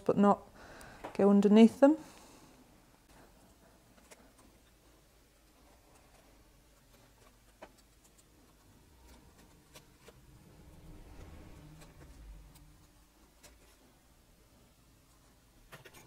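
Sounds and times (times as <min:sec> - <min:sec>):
faint low rumble: 0:08.6 - 0:15.0.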